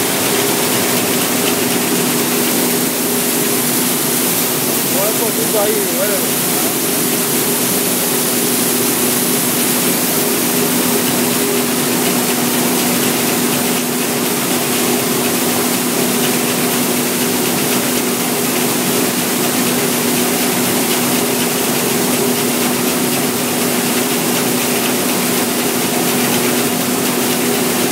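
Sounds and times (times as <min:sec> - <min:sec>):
motor hum: 0:00.0 - 0:13.6
processing machine running: 0:00.0 - 0:22.6.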